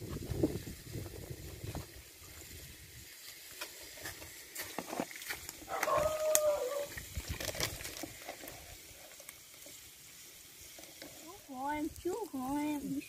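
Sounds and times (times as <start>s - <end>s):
drawn-out animal call: 5.7s - 7.0s.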